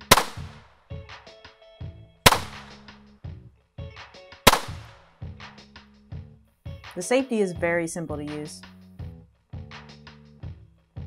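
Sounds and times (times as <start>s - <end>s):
pistol shots with echo: 0.0s - 0.6s, 2.2s - 2.9s, 4.5s - 5.0s.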